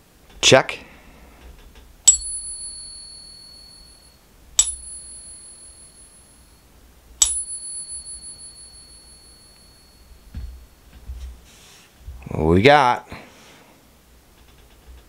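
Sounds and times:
coin ringing bell-like tone: 0:02.1 - 0:10.8.

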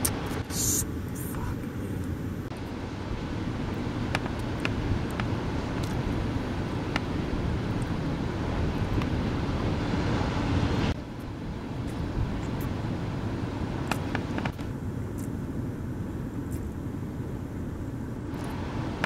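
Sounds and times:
wind rumbling on microphone: 0:00.0 - 0:19.0
breaking surf: 0:02.8 - 0:14.7.

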